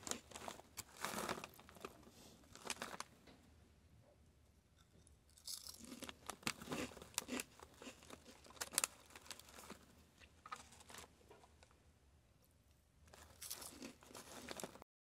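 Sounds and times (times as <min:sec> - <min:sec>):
foil bag crinkling: 0:00.0 - 0:03.1, 0:06.0 - 0:11.1, 0:13.1 - 0:14.8.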